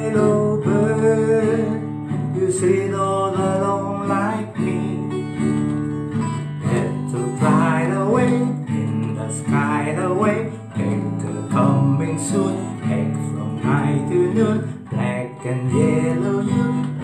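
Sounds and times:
acoustic guitar strumming: 0.0s - 17.0s
man singing: 0.0s - 17.0s.

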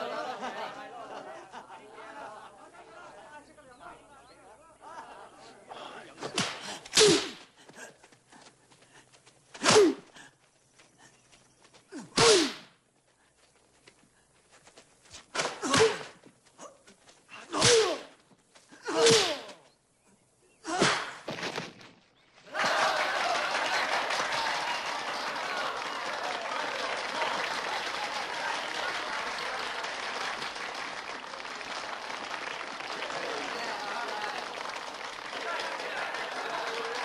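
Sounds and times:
punch and kick impacts: 15.4s - 16.2s, 17.5s - 18.1s, 18.9s - 19.5s
crowd applauding: 22.5s - 37.0s.

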